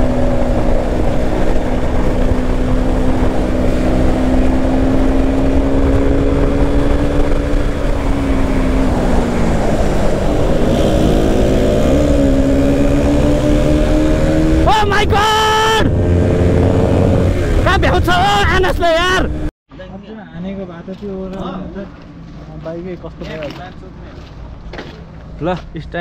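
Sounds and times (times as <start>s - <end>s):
motorcycle engine running: 0.0s - 14.7s
wind rumble on microphone: 0.0s - 15.2s.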